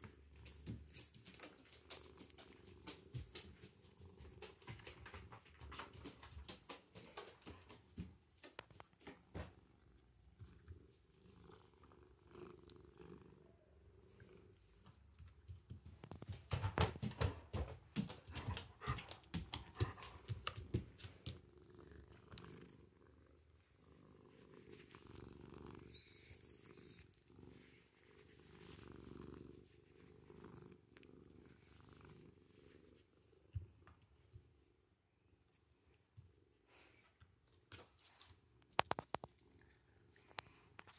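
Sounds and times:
kitten purring: 9.3s - 16.3s, 38.6s - 40.9s.

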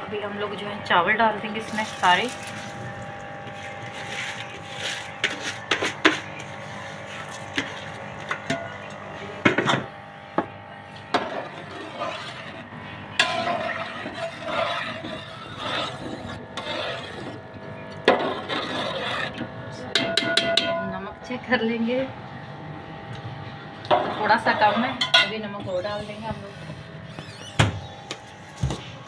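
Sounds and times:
metal spoon scraping pot: 1.6s - 8.9s, 11.2s - 17.4s, 18.0s - 20.9s, 23.9s - 27.3s
knocks and clinks against pot: 20.0s - 20.8s.

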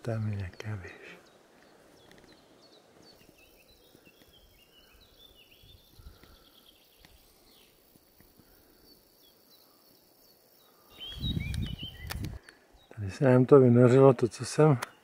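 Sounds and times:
high bird chirps: 9.0s - 13.0s.

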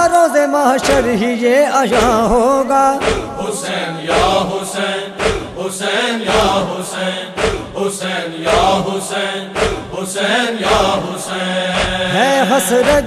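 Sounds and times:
men chanting in chorus: 0.0s - 13.0s
hands slapping chests: 3.0s - 3.3s, 5.2s - 5.6s, 7.4s - 7.8s, 9.5s - 10.0s, 11.7s - 12.2s.

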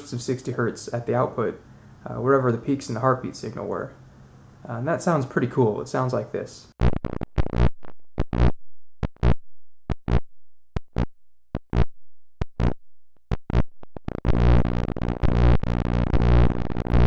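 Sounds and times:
pulsing mains hum: 11.8s - 17.0s
continuous buzzing hum: 12.6s - 17.0s.

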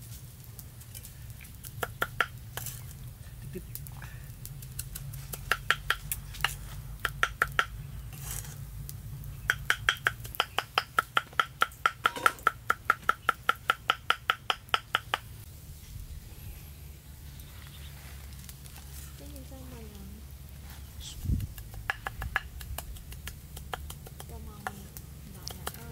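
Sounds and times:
cleaver chopping on wooden board: 9.5s - 15.2s, 21.6s - 22.9s.

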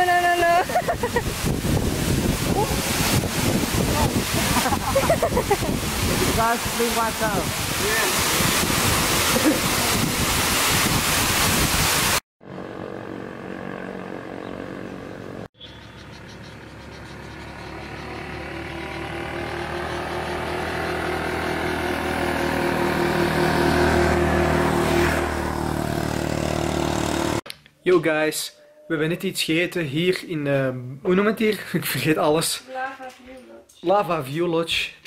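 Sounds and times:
waterfall rushing: 0.2s - 12.2s
vehicle engine approaching: 12.4s - 27.4s.

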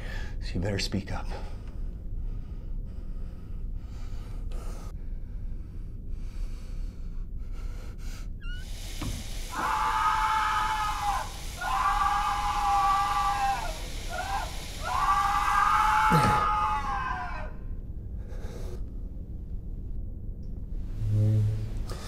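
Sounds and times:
shower spray hissing: 8.4s - 17.4s
man screaming in pain: 9.5s - 17.5s.

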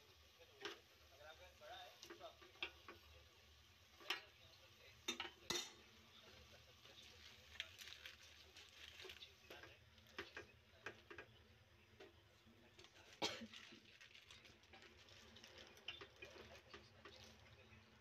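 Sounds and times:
leaves rustling and crinkling: 6.3s - 9.6s, 12.7s - 17.7s.

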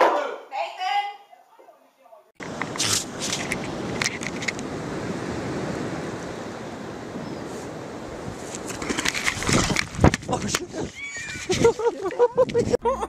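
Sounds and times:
crackles and rustles: 2.4s - 4.7s, 8.3s - 12.7s
steady rushing outdoor noise: 2.4s - 12.8s.

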